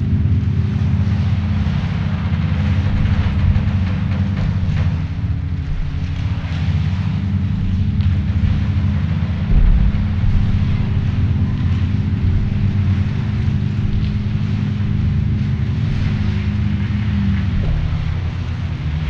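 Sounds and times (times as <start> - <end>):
low rumbling drone: 0.0 - 19.0
deep thud: 2.8 - 16.7.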